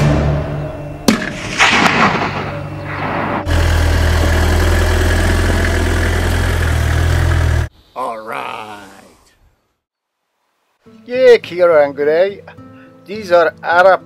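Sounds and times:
sharp crack: 1.0s - 3.6s
vehicle engine humming: 2.5s - 7.7s.

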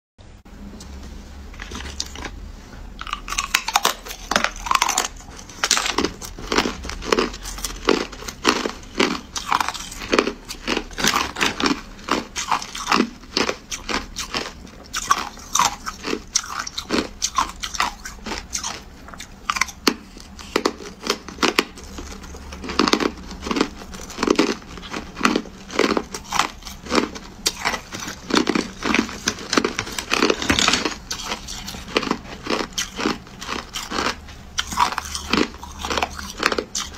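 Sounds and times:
ice being crunched and chewed: 1.6s - 2.4s, 3.0s - 36.9s.

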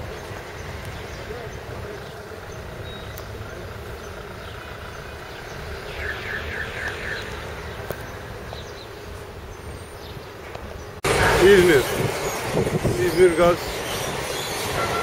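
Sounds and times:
distant traffic: 0.0s - 15.0s
wind: 0.0s - 15.0s
small bird chirping: 0.1s - 11.0s.

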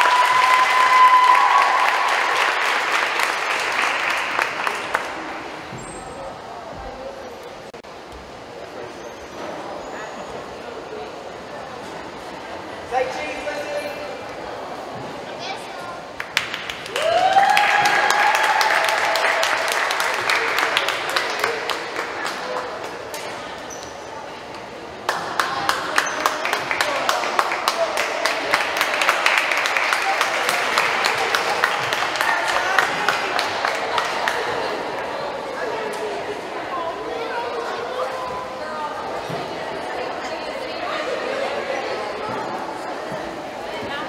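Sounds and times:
long cheer: 0.0s - 5.1s, 16.7s - 22.1s
crowd applauding: 0.0s - 5.6s, 16.1s - 23.2s, 25.0s - 35.6s.

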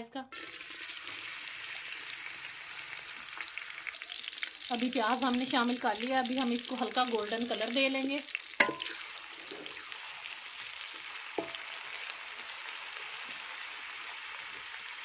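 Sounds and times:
onions sizzling in hot oil: 0.3s - 15.0s
spatula knocking against metal pot: 8.6s - 9.0s.

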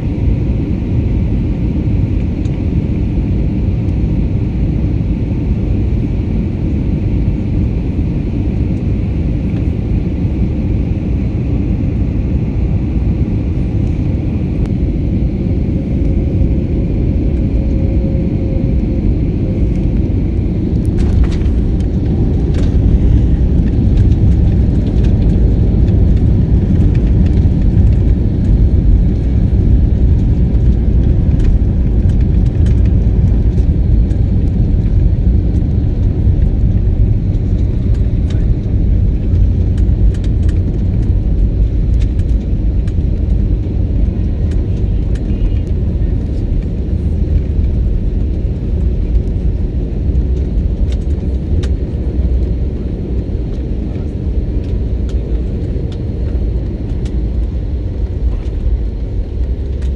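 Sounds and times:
airliner cabin rumble: 0.0s - 59.9s
light rattles and clicks: 20.8s - 46.8s.

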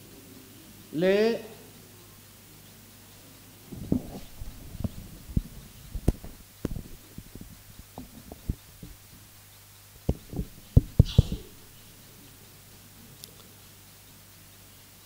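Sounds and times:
faint low hum: 0.0s - 15.0s
microphone handling thumps: 3.7s - 9.2s, 10.0s - 11.6s.

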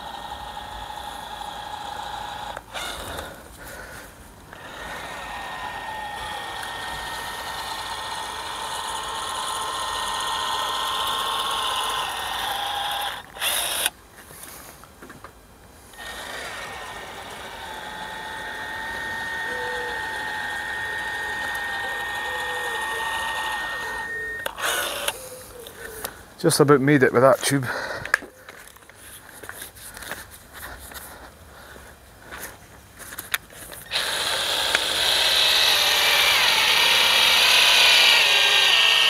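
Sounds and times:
caulking gun motor whining: 0.0s - 14.0s, 15.9s - 26.1s, 33.8s - 39.0s.

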